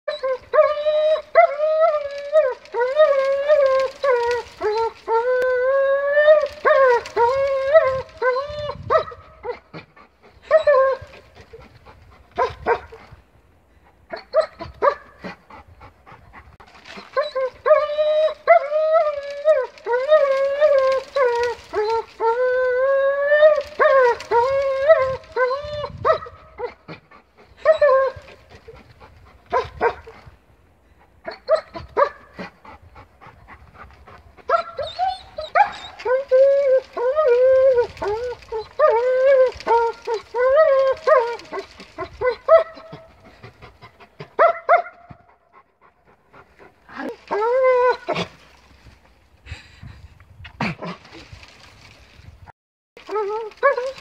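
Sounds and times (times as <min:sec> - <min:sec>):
dog whining and howling: 0:00.1 - 0:09.7, 0:10.4 - 0:11.7, 0:16.9 - 0:26.8, 0:27.6 - 0:28.8, 0:34.5 - 0:43.5, 0:46.9 - 0:48.3, 0:53.0 - 0:54.0.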